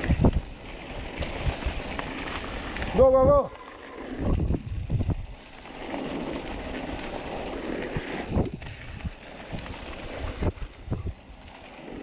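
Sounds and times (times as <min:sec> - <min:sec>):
wind on microphone: 0:00.0 - 0:00.6, 0:02.9 - 0:05.4, 0:07.8 - 0:11.3
bike tyres on gravel: 0:00.0 - 0:12.0.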